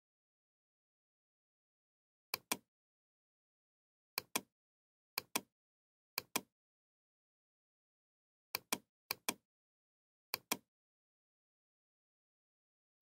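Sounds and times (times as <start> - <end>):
computer mouse clicks: 2.4 - 2.7, 4.2 - 4.5, 5.2 - 5.5, 6.2 - 6.5, 8.6 - 9.4, 10.4 - 10.7.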